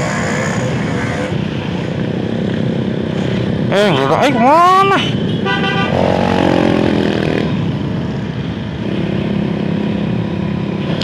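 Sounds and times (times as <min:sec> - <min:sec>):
motorcycle engines: 0:00.0 - 0:11.0
engine revving: 0:05.9 - 0:07.7.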